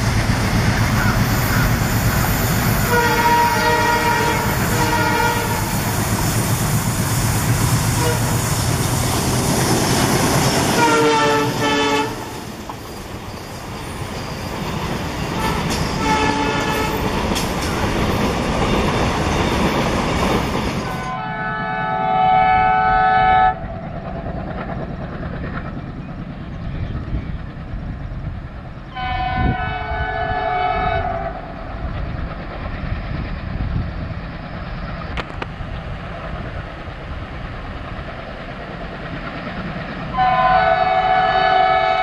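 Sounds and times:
diesel locomotive engine rumbling: 0.0s - 42.0s
train horn blasts: 2.9s - 5.8s, 8.0s - 8.5s, 10.7s - 12.3s, 15.4s - 17.1s, 20.8s - 23.7s, 28.9s - 31.5s, 40.1s - 42.0s.

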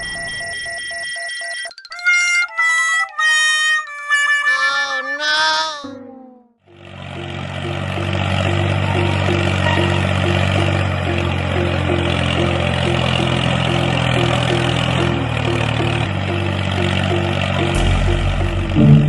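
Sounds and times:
toy tractor engine drone: 6.7s - 17.8s.

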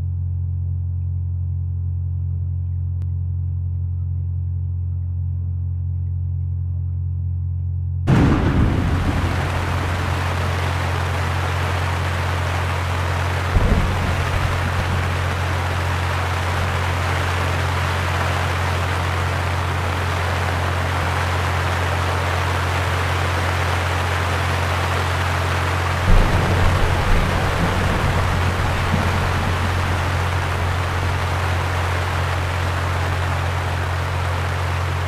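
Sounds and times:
low hum: 0.0s - 35.0s
rain hiss: 8.1s - 35.0s
low thump: 13.6s - 15.2s.

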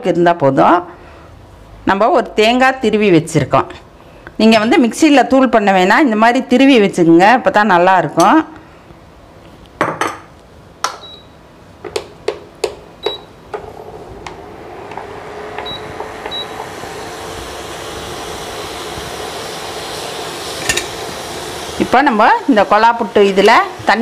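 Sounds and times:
cooktop hum and hiss: 0.0s - 24.0s
metal pot clinking: 20.6s - 21.0s.

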